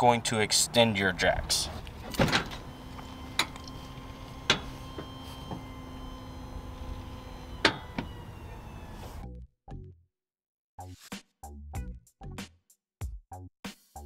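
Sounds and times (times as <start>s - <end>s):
electric motor humming: 1.8s - 9.2s.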